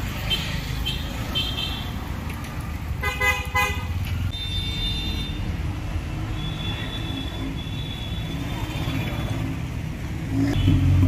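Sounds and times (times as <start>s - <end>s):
traffic engines rumbling: 0.0s - 11.0s
vehicle horn honking: 3.0s - 5.4s.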